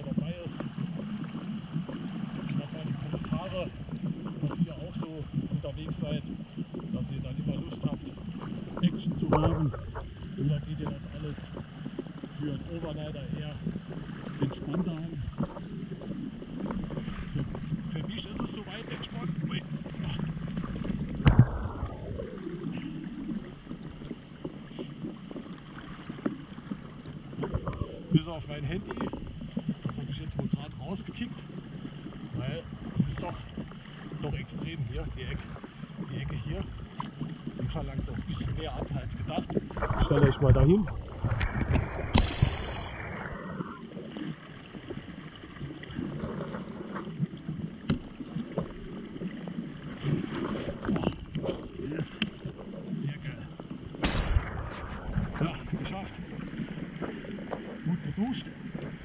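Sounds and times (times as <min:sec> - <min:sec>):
water sloshing around wading legs: 0:00.0 - 0:59.0
river current rushing: 0:40.9 - 0:46.8.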